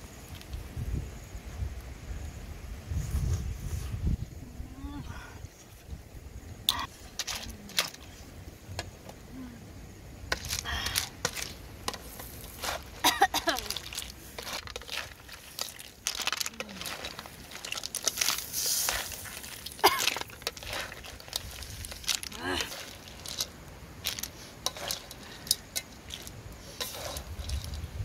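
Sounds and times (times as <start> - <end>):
mussel shells clattering on metal: 6.7 - 8.1, 10.3 - 27.9.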